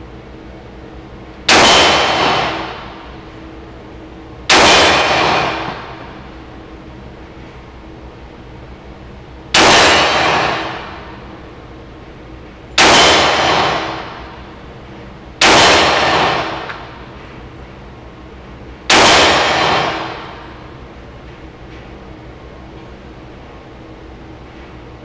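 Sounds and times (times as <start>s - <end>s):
pistol shots with ringing echo: 1.5s - 3.1s, 4.5s - 6.2s, 9.5s - 11.3s, 12.8s - 14.4s, 15.4s - 17.0s, 18.9s - 20.6s.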